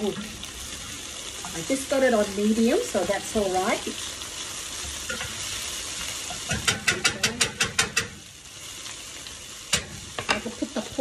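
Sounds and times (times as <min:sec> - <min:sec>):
food sizzling in a frying pan: 0:00.0 - 0:11.0
wooden spoon tapping a pan: 0:06.3 - 0:08.2.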